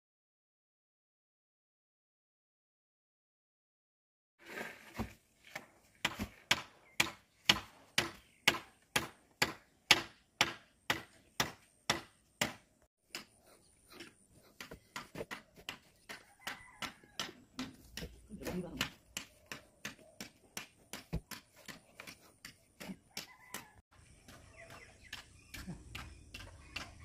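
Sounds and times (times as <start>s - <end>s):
tool striking concrete mix: 4.4s - 27.0s.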